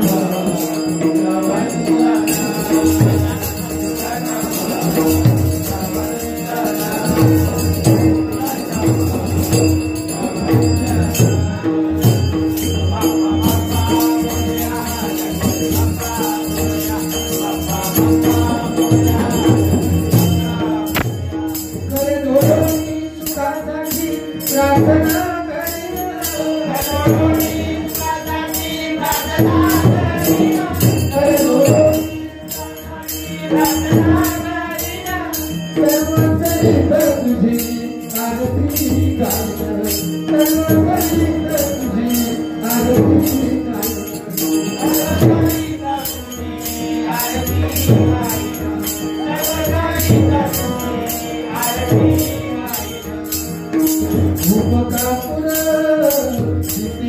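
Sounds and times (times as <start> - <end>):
harmonium held note: 0.0 - 57.0
lead singer and chorus singing: 0.0 - 57.0
small hand cymbals: 0.0 - 57.0
drum strokes: 18.3 - 22.8.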